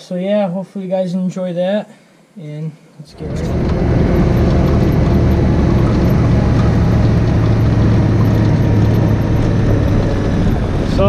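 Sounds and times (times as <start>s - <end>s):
utility buggy engine droning: 3.1s - 11.0s.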